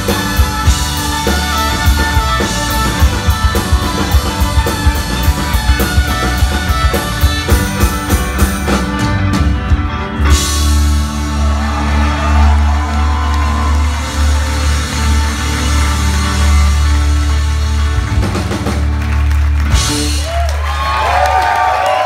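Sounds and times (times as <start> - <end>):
drum kit beat: 0.0 - 12.8
violin: 0.0 - 20.2.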